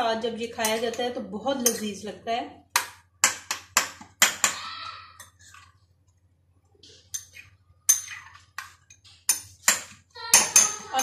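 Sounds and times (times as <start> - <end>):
spoon clinking against ceramic bowl: 7.1 - 11.0.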